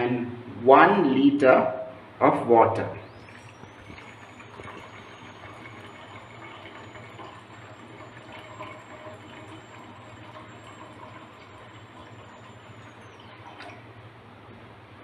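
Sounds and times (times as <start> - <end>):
water pouring into a saucepan: 3.3 - 13.8.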